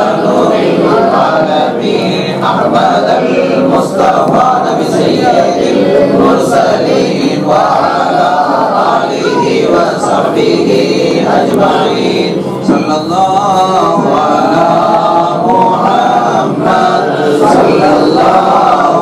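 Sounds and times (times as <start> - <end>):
men chanting together: 0.0 - 19.0.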